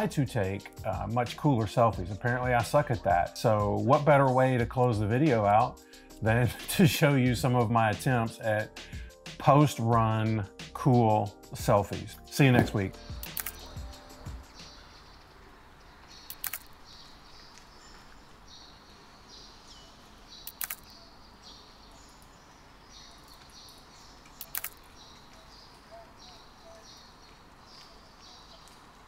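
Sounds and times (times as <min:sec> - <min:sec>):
faint outdoor ambience: 0:00.0 - 0:29.0
camera shutter clicking: 0:13.2 - 0:13.7, 0:16.3 - 0:16.8, 0:20.5 - 0:20.9, 0:24.4 - 0:24.8.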